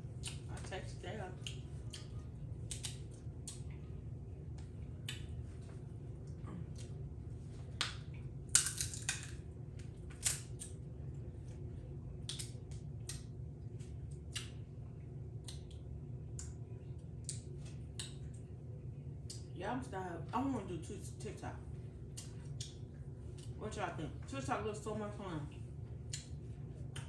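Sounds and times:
low hum: 0:00.0 - 0:27.0
crab shells cracking: 0:07.8 - 0:09.5.

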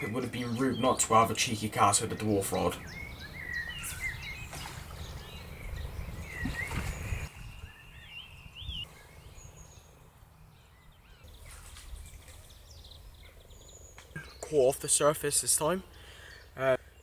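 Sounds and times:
birds singing: 0:00.0 - 0:17.0
wind rumble on microphone: 0:03.2 - 0:09.9.

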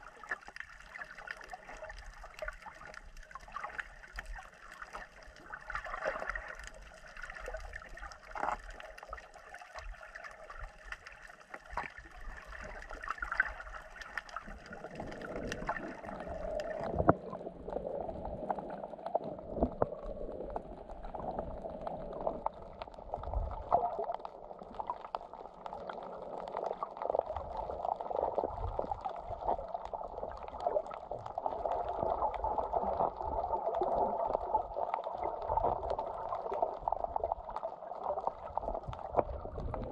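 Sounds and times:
muffled underwater bubbling: 0:00.0 - 0:39.9
water gurgling and sloshing: 0:00.0 - 0:39.9
underwater clicks and knocks: 0:10.8 - 0:25.9, 0:38.2 - 0:39.9.

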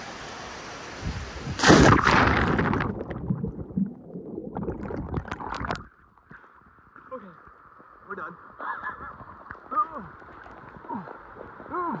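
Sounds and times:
loud splash: 0:01.6 - 0:05.8
bubbles popping and gurgling: 0:01.6 - 0:06.1.

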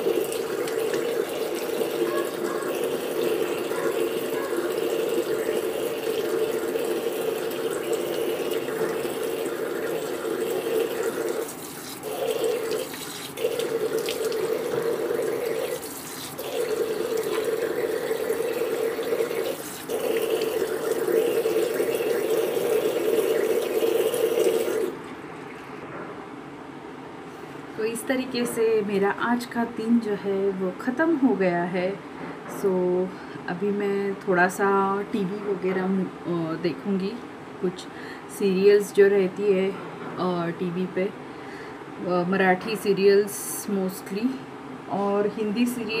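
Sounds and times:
tap running into a sink: 0:00.0 - 0:25.0.

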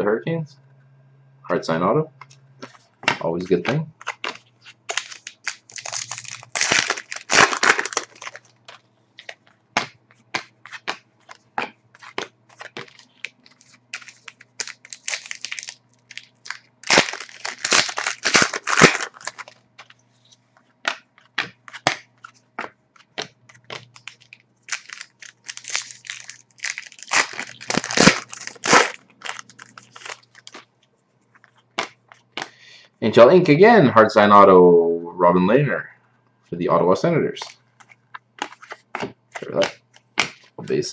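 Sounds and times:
cards snapping: 0:02.2 - 0:19.9, 0:20.8 - 0:30.6, 0:37.8 - 0:40.5
foil packs crinkling: 0:04.0 - 0:09.5, 0:10.3 - 0:20.0, 0:23.0 - 0:30.7, 0:37.8 - 0:40.5.

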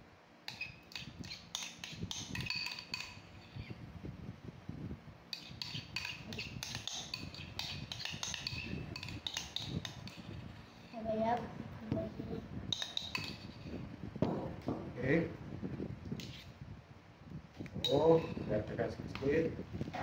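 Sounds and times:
metal spoon scraping ceramic bowl: 0:00.5 - 0:03.8, 0:05.3 - 0:11.0, 0:12.7 - 0:13.8, 0:16.2 - 0:16.5, 0:17.8 - 0:18.6.

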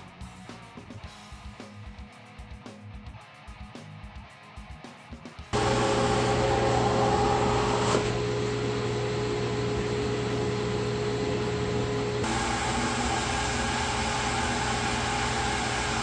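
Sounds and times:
dust collector humming: 0:05.6 - 0:16.0.

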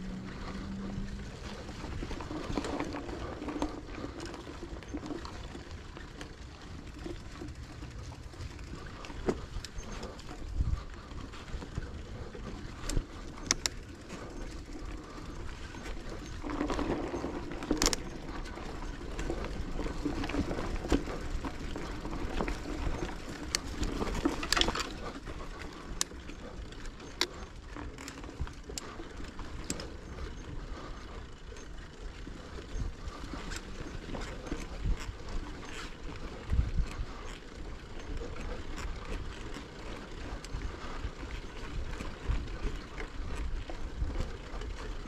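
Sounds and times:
bicycle tyres rolling on path: 0:00.0 - 0:45.0
sharp clicks and rattles: 0:00.4 - 0:30.9.

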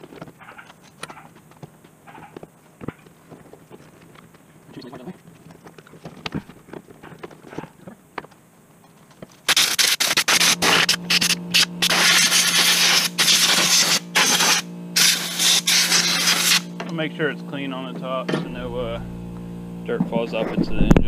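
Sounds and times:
steady low hum: 0:00.0 - 0:21.0
compressed air blow gun hissing: 0:09.5 - 0:16.7.

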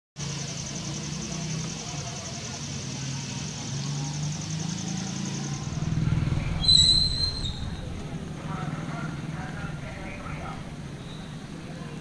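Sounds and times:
vehicle engine low pulsing hum: 0:03.6 - 0:11.6
short high whistle-like tone: 0:06.6 - 0:07.8.

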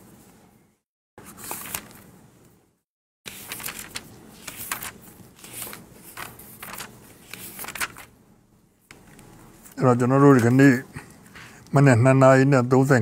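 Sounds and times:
paper rustling: 0:01.2 - 0:02.1, 0:03.3 - 0:08.1.

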